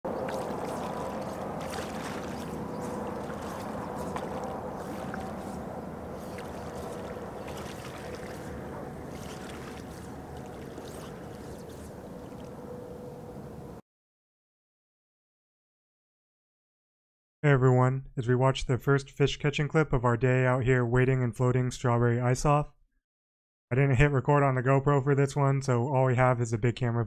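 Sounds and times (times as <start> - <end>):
wind: 0.0 - 13.8
small splashy ticks: 0.1 - 12.6
small waves lapping: 0.1 - 13.0
faint steady hum: 0.1 - 13.8.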